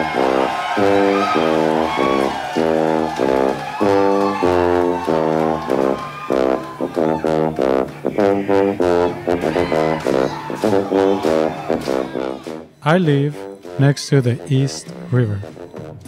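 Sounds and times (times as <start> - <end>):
music of short repeated notes: 10.2 - 16.0.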